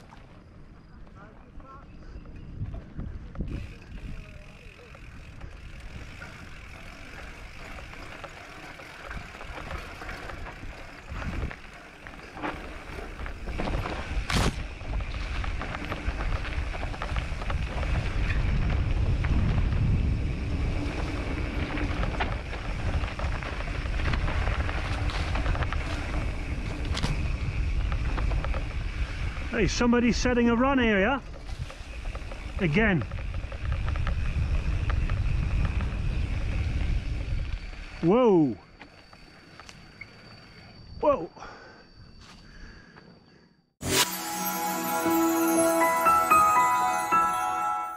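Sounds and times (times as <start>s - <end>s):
bike tyre and frame rattle: 0.0s - 40.7s
wind buffeting microphone: 0.9s - 38.0s
bike knocking over bumps: 31.4s - 36.6s.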